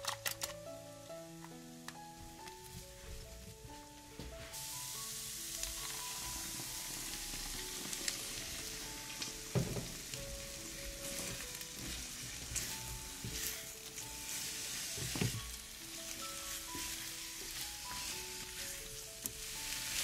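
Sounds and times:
food sizzling in a frying pan: 0:04.4 - 0:20.0.

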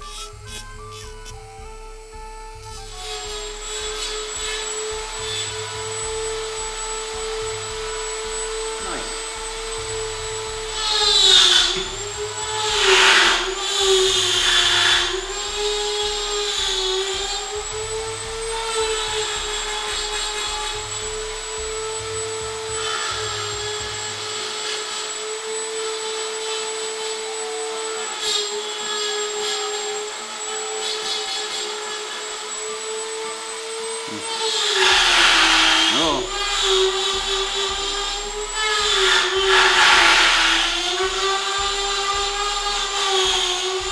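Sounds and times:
rotary tool grinding antler: 0:00.0 - 0:43.9.

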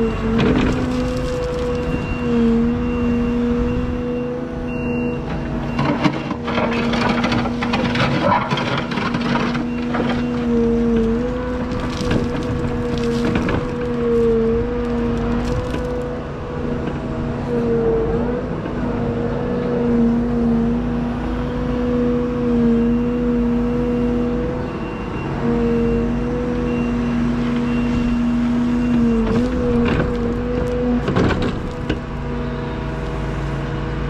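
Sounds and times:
excavator engine and hydraulics: 0:00.0 - 0:34.0
knocks and scrapes: 0:05.8 - 0:16.1.

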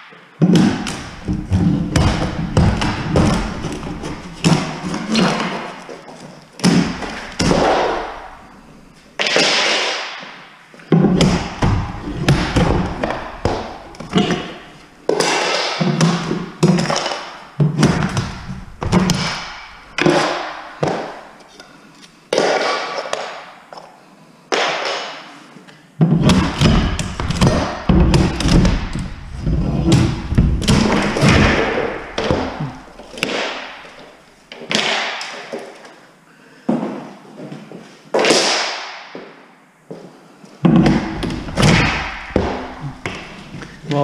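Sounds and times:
heavy thuds on floor boards: 0:00.4 - 0:05.7, 0:10.9 - 0:21.2, 0:26.0 - 0:33.8, 0:40.6 - 0:43.7.

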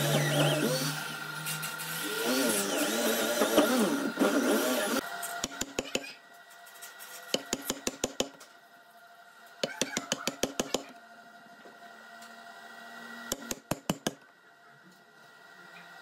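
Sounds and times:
hammer striking chisel into wood: 0:05.4 - 0:06.1, 0:07.3 - 0:08.4, 0:09.6 - 0:10.9, 0:13.3 - 0:14.2.

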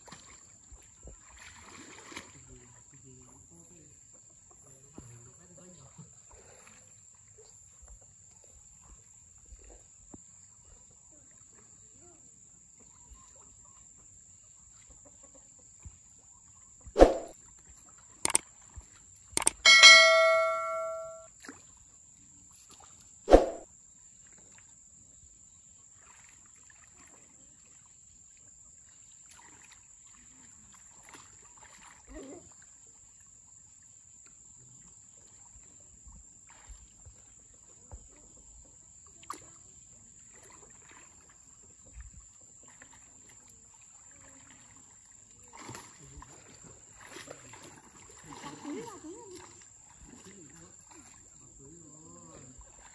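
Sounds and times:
mouse clicks: 0:19.4 - 0:19.6
bright bell-like ding: 0:19.4 - 0:21.2.

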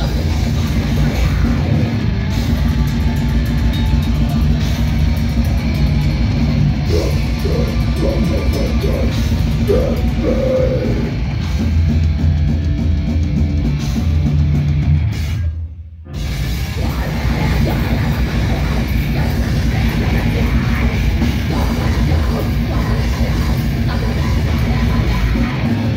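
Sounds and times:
heavy metal band playing: 0:00.0 - 0:25.9.

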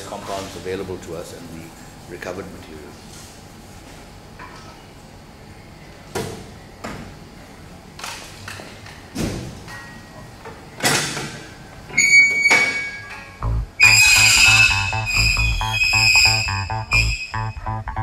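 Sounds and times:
background music with bass beat: 0:13.4 - 0:18.0.

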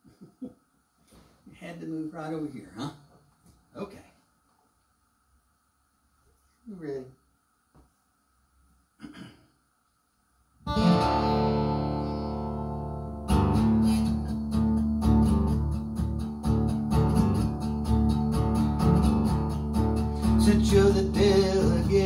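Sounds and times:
acoustic guitar strumming: 0:10.7 - 0:22.0.

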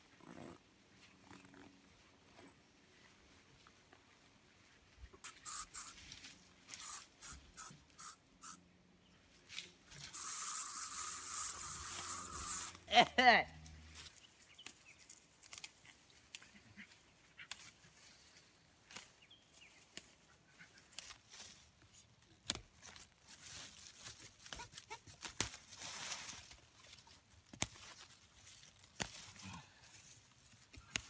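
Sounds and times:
fronds rustling: 0:02.7 - 0:08.6, 0:09.2 - 0:12.9, 0:13.6 - 0:31.0
knife snapping fern stems: 0:15.4 - 0:16.5, 0:22.4 - 0:23.0, 0:28.9 - 0:29.3, 0:30.6 - 0:31.0.

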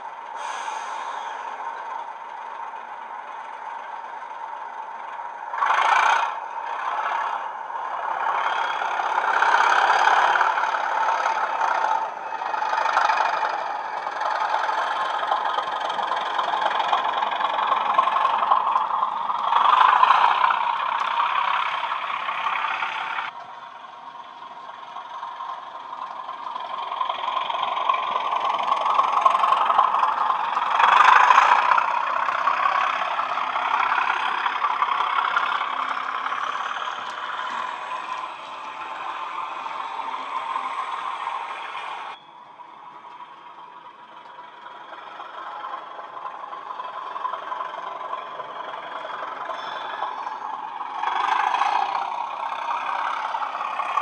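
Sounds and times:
diesel locomotive engine sound: 0:00.0 - 0:54.0
model train running on track: 0:00.0 - 0:54.0.

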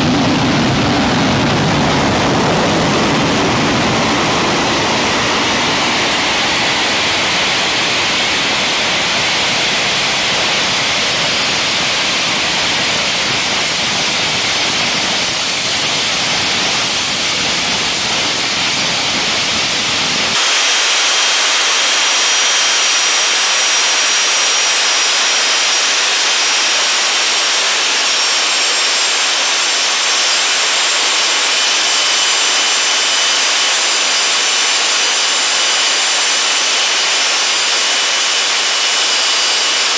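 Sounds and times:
gas turbine roaring: 0:00.0 - 0:39.9
high turbine whine: 0:00.0 - 0:39.9.

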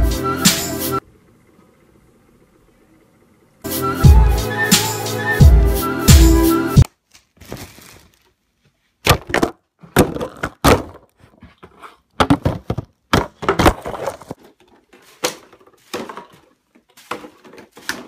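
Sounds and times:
plastic bottles clattering: 0:09.0 - 0:18.0.

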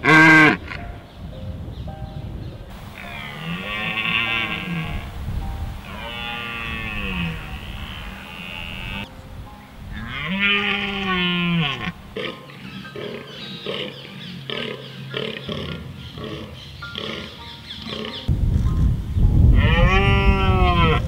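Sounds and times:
deer buck groaning calls: 0:02.7 - 0:09.1, 0:10.0 - 0:18.3
deer stag roaring: 0:02.7 - 0:09.1, 0:10.0 - 0:12.4.

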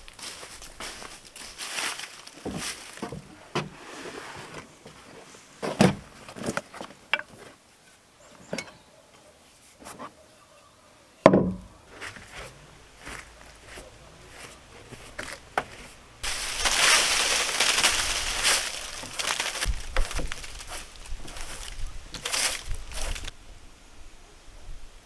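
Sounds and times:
footsteps in dry leaves: 0:00.0 - 0:03.1, 0:11.9 - 0:23.3
footsteps on wooden boards: 0:00.0 - 0:03.8, 0:11.3 - 0:23.3
sharp wooden knocks and thuds: 0:11.3 - 0:11.7, 0:19.0 - 0:23.3.

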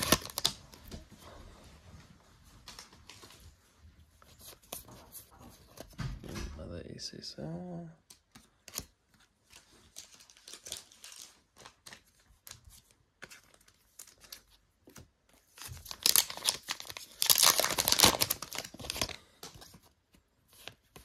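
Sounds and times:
foil pack tearing and crinkling: 0:00.0 - 0:00.6, 0:15.6 - 0:19.2
rustling of wrappers and cards: 0:00.0 - 0:06.1, 0:08.0 - 0:21.0.

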